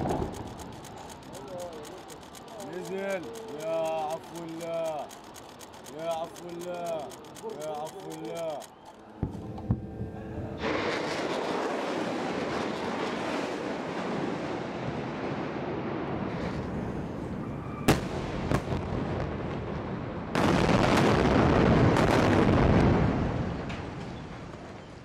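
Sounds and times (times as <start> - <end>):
continuous noisy rumble: 0.0 - 10.9
long explosion blast: 9.2 - 16.5, 17.8 - 24.7.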